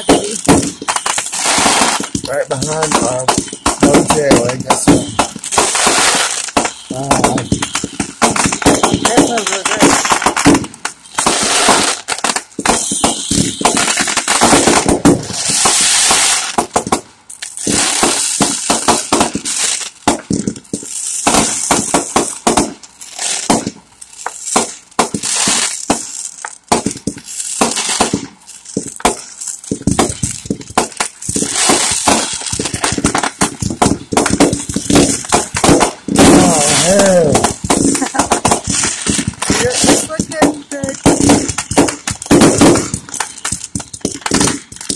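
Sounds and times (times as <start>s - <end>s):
fireworks bangs and crackling: 0.0s - 44.9s.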